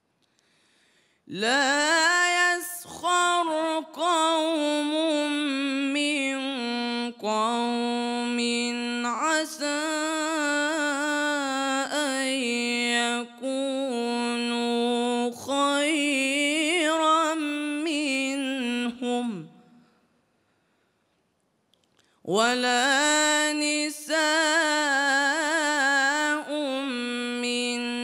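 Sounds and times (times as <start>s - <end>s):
man chanting into a microphone: 1.3s - 19.7s, 22.3s - 28.0s.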